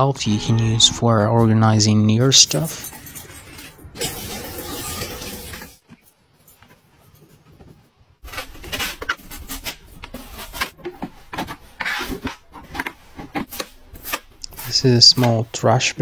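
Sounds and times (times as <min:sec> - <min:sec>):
knife slicing watermelon on plastic board: 0:08.2 - 0:15.4.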